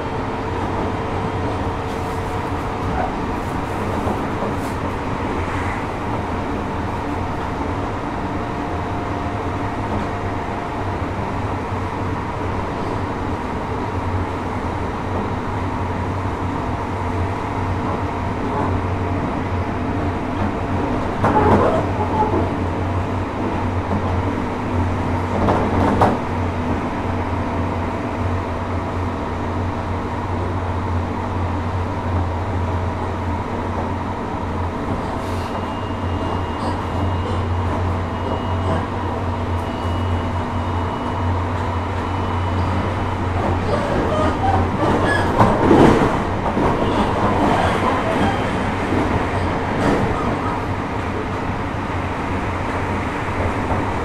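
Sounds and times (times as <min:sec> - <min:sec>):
wheels rolling on rail: 0:32.0 - 0:54.0.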